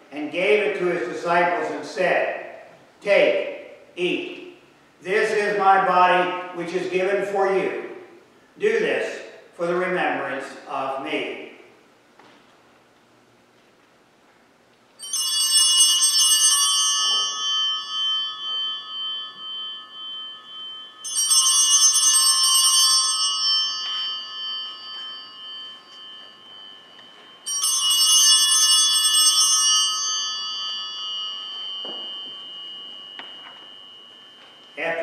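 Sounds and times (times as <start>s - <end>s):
small altar bells ringing: 15.0s - 35.0s.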